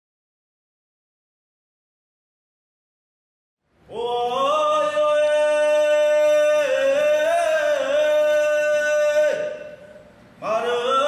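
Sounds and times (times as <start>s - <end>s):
men singing a cappella: 3.9s - 11.0s.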